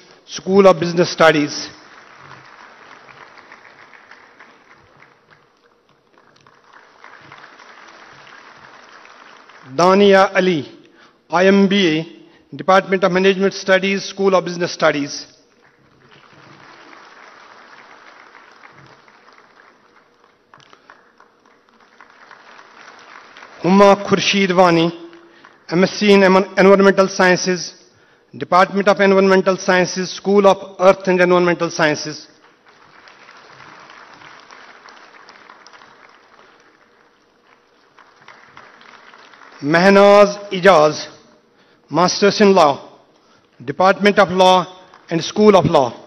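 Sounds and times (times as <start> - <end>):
audience applause: 1.0 - 10.1, 15.4 - 26.2, 32.3 - 40.5.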